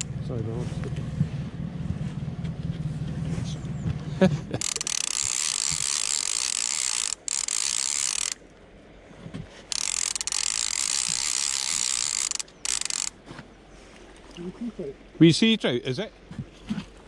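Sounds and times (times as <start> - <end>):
fly reel ratcheting: 4.6 - 8.4, 9.7 - 13.2.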